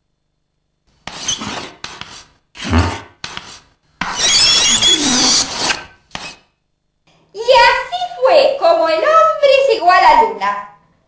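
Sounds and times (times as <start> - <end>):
chalk scraping on a blackboard: 1.0 - 6.5
chalk squeaking: 1.0 - 6.5.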